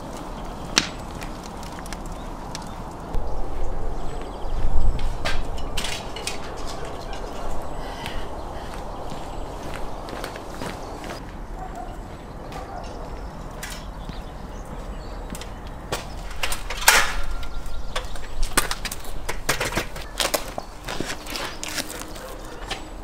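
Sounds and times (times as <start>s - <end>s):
metal ladder clanking: 5.2s - 7.6s, 16.2s - 20.5s.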